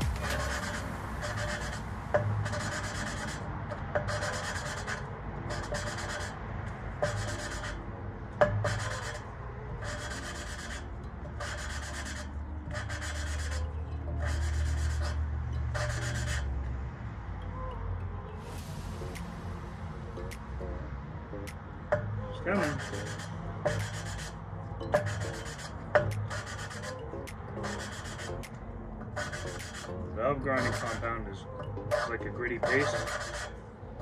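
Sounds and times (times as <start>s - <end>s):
valve grinding rasp: 0.0s - 1.8s, 30.6s - 31.0s, 31.9s - 33.5s.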